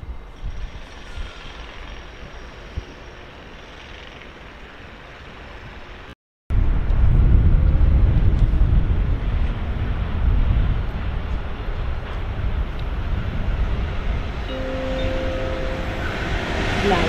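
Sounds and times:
railway station low rumble: 0.0s - 17.0s
wind buffeting microphone: 6.5s - 17.0s.

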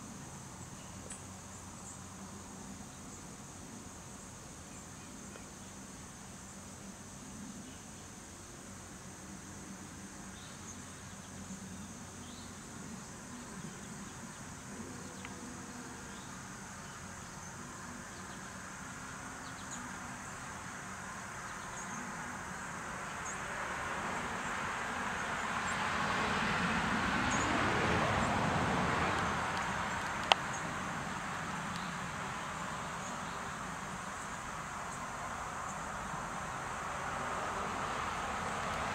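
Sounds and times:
insects chirping: 0.0s - 38.9s
vehicle passing: 23.3s - 33.0s, 35.2s - 38.9s.

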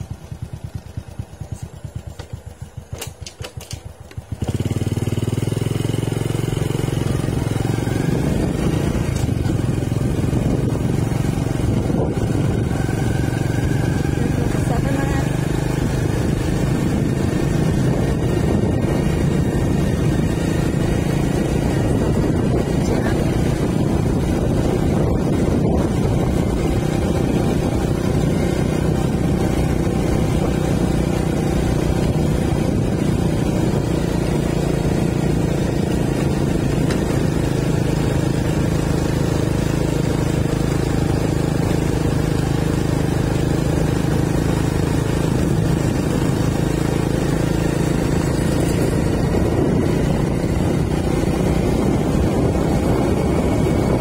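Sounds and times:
road noise: 0.0s - 54.0s
vehicle engine rumble: 0.0s - 54.0s.

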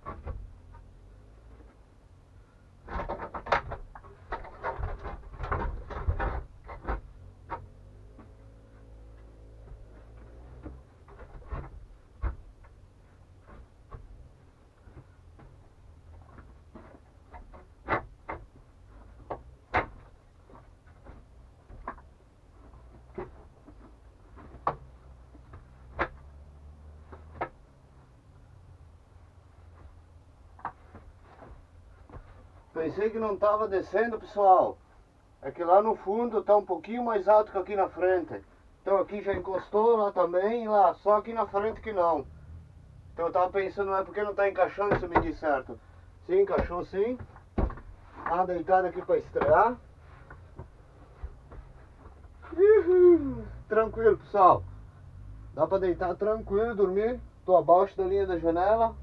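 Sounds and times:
wooden bed knocking and clattering: 0.0s - 1.9s, 2.8s - 28.2s, 29.6s - 32.8s, 43.8s - 52.4s
wooden bed knocking: 46.5s - 48.4s.

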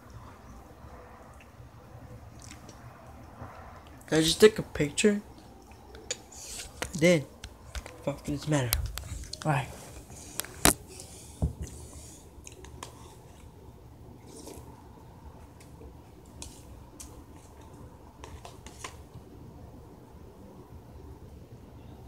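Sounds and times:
faint low hum: 0.0s - 22.0s
person chewing cereal: 2.2s - 2.8s, 9.0s - 19.0s.

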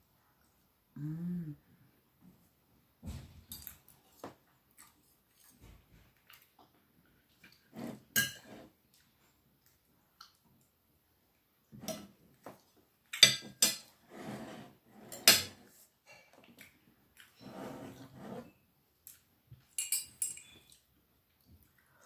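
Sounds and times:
knife and fork scraping on plate: 7.7s - 8.7s, 13.3s - 15.6s, 17.4s - 18.6s.

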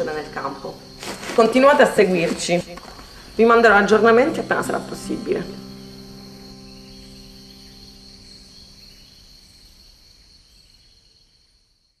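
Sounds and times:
crickets chirring: 0.0s - 12.0s
low held chord: 3.6s - 9.6s.

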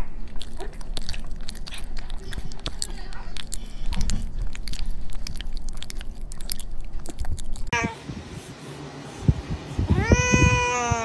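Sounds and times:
puppy mouth smacks and chewing: 0.1s - 7.8s.

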